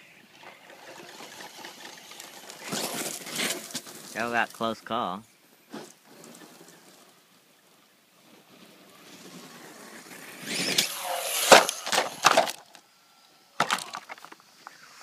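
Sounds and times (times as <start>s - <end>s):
rc car approaching at speed: 0.1s - 4.2s, 5.7s - 13.6s, 14.3s - 15.0s
rc car crashing with hard knocks: 0.7s - 4.1s, 9.2s - 12.8s, 13.6s - 14.5s.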